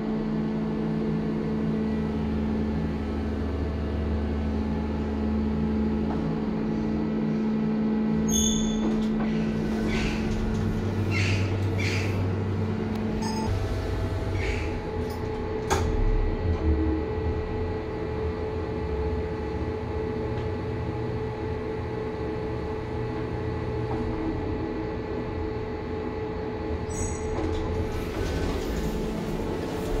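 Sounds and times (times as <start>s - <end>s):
elevator motor hum: 0.0s - 30.0s
elevator doors opening: 8.2s - 16.8s, 26.8s - 30.0s.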